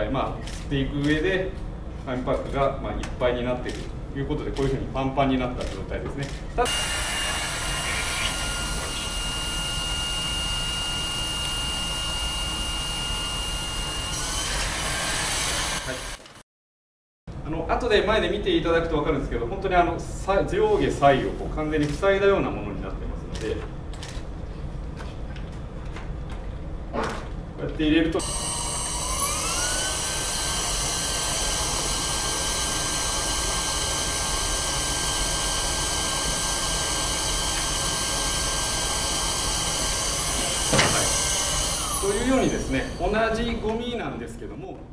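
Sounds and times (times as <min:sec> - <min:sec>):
stick vacuum running: 0:06.6 - 0:16.3, 0:28.2 - 0:43.8.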